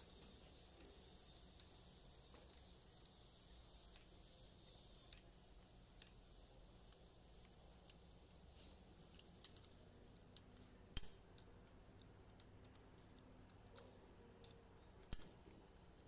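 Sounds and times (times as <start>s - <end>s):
metallic clicks of hand tools: 9.1s - 15.4s.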